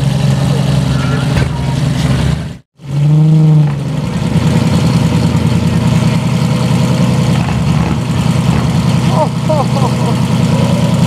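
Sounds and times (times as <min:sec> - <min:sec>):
car engine idling: 0:00.0 - 0:11.0.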